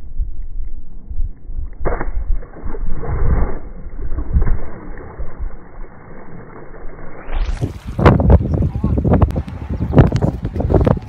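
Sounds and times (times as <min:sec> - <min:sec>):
wind rumble on microphone: 0:00.0 - 0:11.0
water splashing and sloshing: 0:01.8 - 0:08.6.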